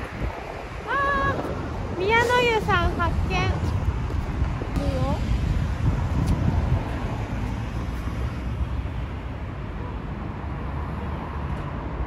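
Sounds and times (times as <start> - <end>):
road traffic noise: 0.0 - 12.0
wind rumbling on microphone: 0.0 - 12.0.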